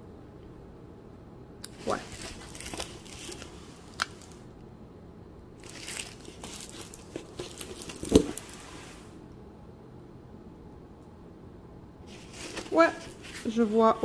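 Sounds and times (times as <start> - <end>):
plastic film crinkling: 1.8 - 4.4, 5.6 - 8.8, 12.1 - 14.0.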